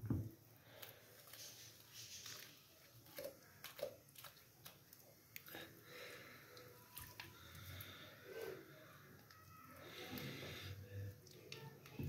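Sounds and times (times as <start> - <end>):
knife squishing through raw meat: 0.7 - 5.6.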